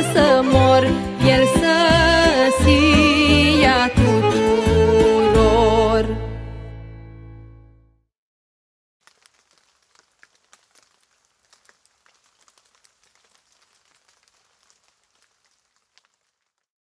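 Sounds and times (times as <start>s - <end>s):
faint irregular crackling: 9.0s - 16.7s.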